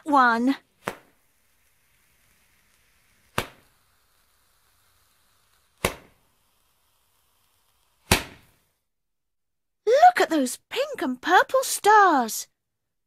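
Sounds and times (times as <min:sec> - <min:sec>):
firework whooshing pops: 0:00.6 - 0:08.8.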